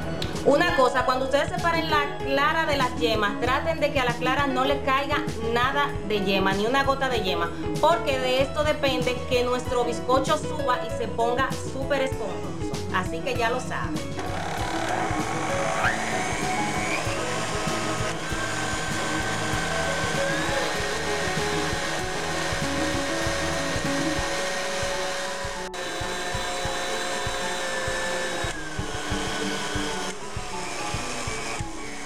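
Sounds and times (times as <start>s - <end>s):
background music: 0.0s - 32.0s
stand mixer running at high speed: 14.2s - 32.0s.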